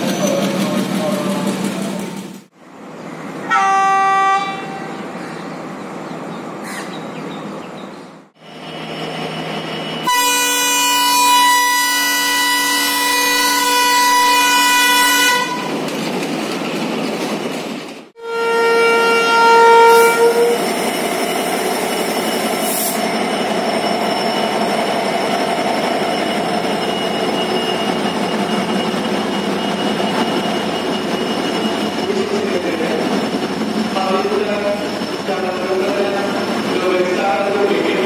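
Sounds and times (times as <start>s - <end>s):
train rumbling and rattling past: 0.0s - 18.2s, 18.9s - 38.0s
locomotive horn: 3.5s - 5.0s, 10.0s - 15.7s, 18.2s - 20.7s.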